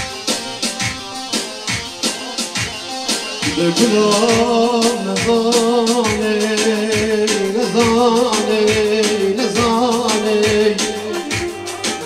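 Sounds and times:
backing music with percussion beat: 0.0s - 12.0s
man singing into microphone: 3.4s - 12.0s.

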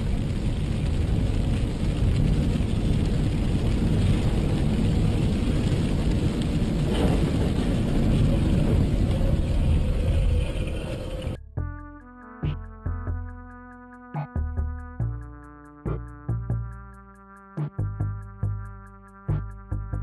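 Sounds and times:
tyre hiss on wet road: 0.0s - 11.1s.

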